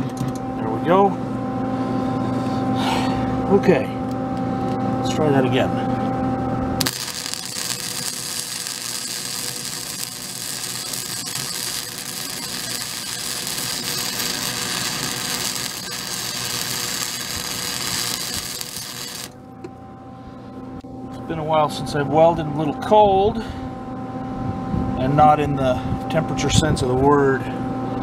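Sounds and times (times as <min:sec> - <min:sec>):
welder arc crackling and hissing: 0:06.8 - 0:19.4.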